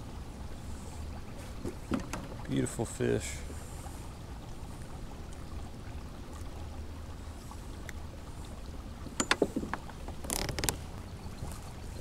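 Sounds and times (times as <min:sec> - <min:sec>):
low steady rumble: 0:00.0 - 0:12.0
handling noise on kayak: 0:01.4 - 0:02.5, 0:09.0 - 0:11.6.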